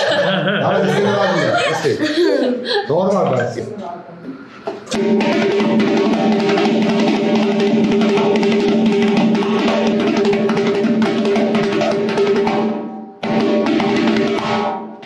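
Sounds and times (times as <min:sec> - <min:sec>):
frame drum struck rapidly: 0:04.9 - 0:15.0.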